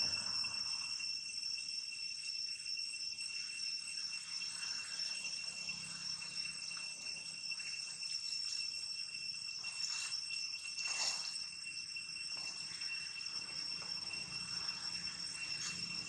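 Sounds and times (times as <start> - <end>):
high-pitched insect drone: 0.0 - 16.0.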